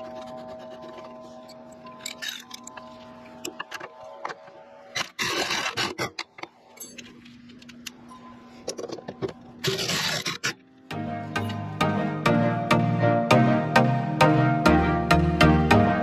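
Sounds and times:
wrench scraping rasps: 0:09.6 - 0:10.6.

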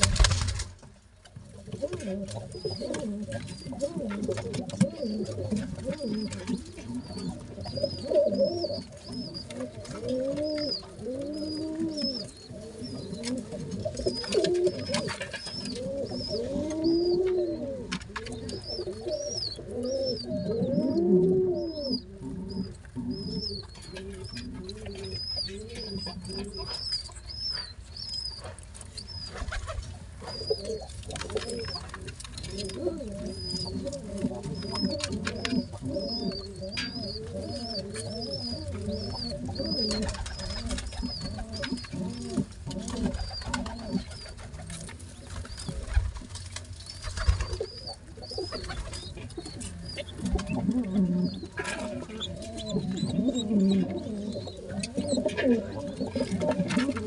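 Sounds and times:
clicks and rustles: 0:00.0 - 0:12.2, 0:28.4 - 0:54.0, 0:54.7 - 0:57.0
pigeon cooing calls: 0:01.6 - 0:57.0.

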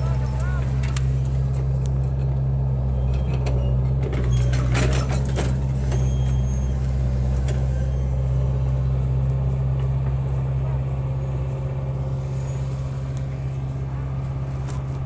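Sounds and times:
metallic clanks and rattles: 0:00.0 - 0:08.0
diesel engine running: 0:00.0 - 0:15.0.

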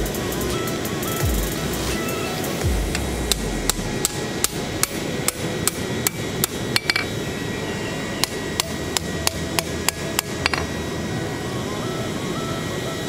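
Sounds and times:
hammer striking metal on anvil: 0:02.8 - 0:07.2, 0:08.2 - 0:10.7.

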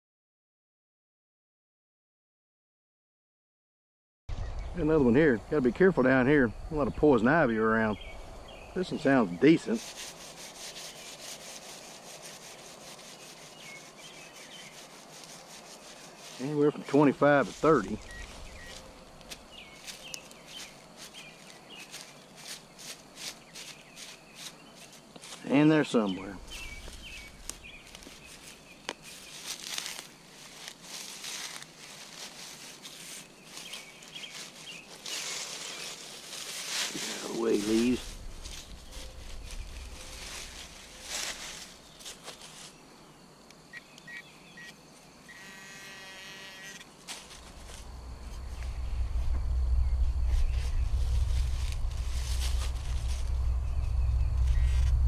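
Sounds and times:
dry leaves crunching: 0:08.0 - 0:42.8, 0:46.6 - 0:55.0
steady buzzing tone: 0:45.3 - 0:55.0.

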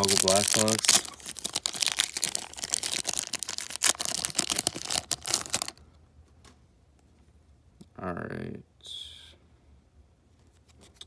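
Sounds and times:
foil wrapper crinkling and tearing: 0:00.0 - 0:05.8.

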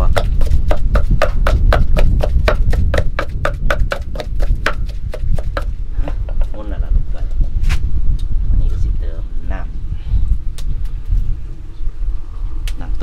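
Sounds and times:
pestle pounding in mortar: 0:00.0 - 0:05.7.

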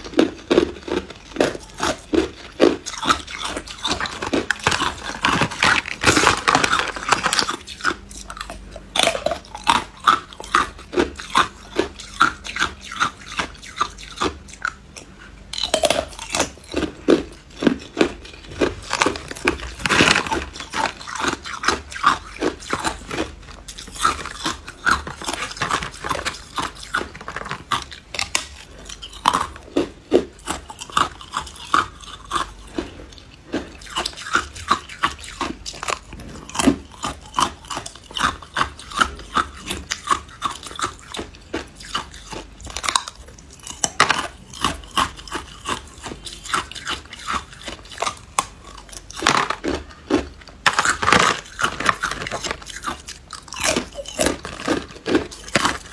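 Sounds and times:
person chewing hard ice: 0:00.0 - 0:55.9.

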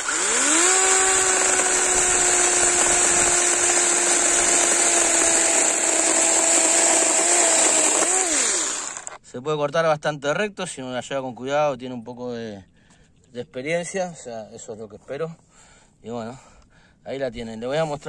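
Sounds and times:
electric chainsaw cutting wood: 0:00.0 - 0:09.2.

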